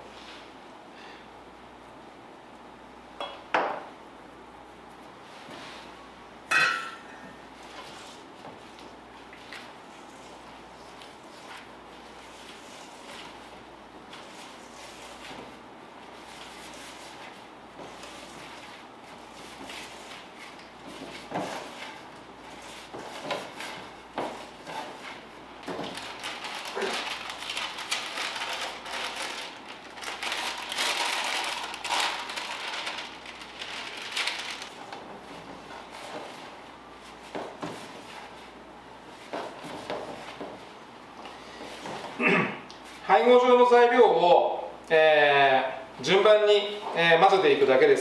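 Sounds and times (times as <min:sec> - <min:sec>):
hand working dough in metal bowl: 0:06.6 - 0:42.2.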